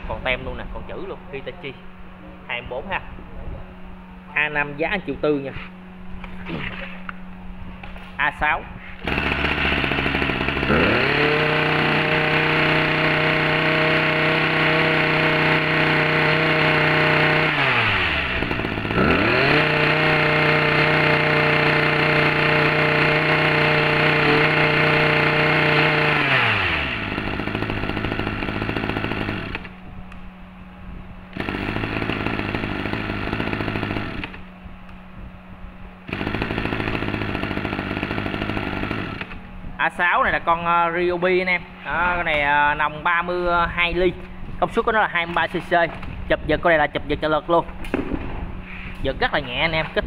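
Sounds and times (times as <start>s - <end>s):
brush cutter engine revving: 9.0s - 29.8s, 31.3s - 34.5s, 36.1s - 40.0s.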